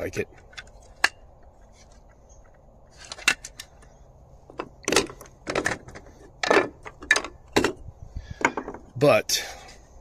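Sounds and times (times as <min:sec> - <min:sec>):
plastic parts clattering on wood: 0:03.0 - 0:03.9, 0:04.5 - 0:07.8, 0:08.4 - 0:08.9.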